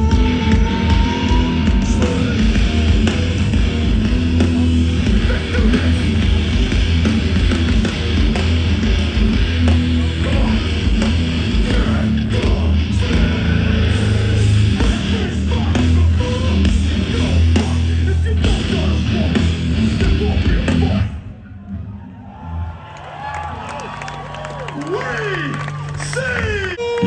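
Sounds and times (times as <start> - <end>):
hardcore band playing heavy guitar: 0.0 - 21.4.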